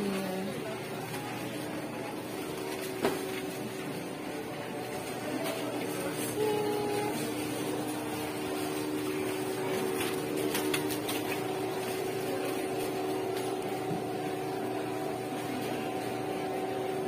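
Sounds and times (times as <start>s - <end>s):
light plastic crackles: 0.0s - 14.2s
steady hum with held tones: 0.0s - 17.0s.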